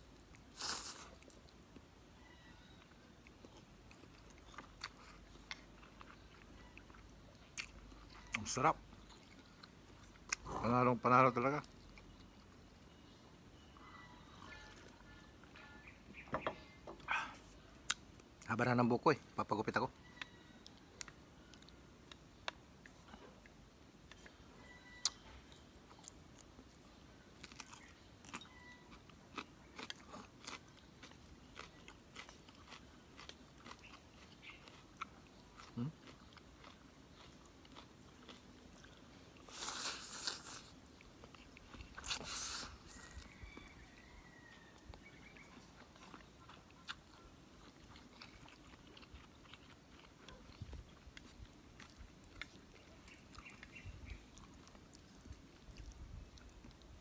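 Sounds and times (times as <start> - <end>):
loud noodle slurps: 0.6 - 1.0
faint chewing and mouth clicks: 2.6 - 13.1, 19.7 - 57.0.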